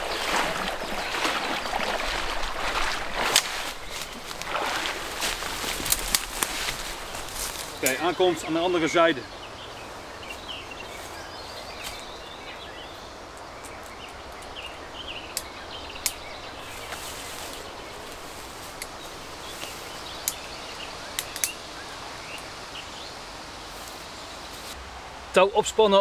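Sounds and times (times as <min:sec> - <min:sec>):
small birds chirping: 0:00.0 - 0:24.8
climbing rope rustling: 0:02.1 - 0:07.9.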